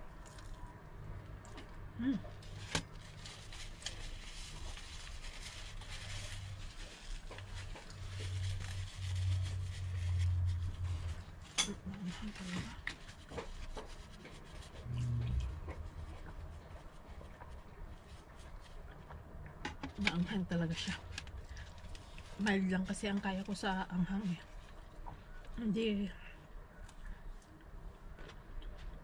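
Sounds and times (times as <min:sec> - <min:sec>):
low rumbling hum: 0:00.0 - 0:12.8, 0:14.6 - 0:27.1
person chewing food: 0:13.2 - 0:19.6.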